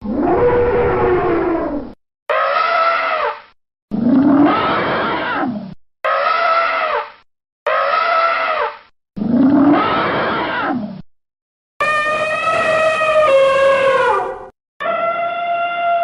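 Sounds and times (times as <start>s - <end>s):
elephant trumpet calls: 2.3s - 3.4s, 6.0s - 7.1s, 7.7s - 8.8s, 11.8s - 16.0s.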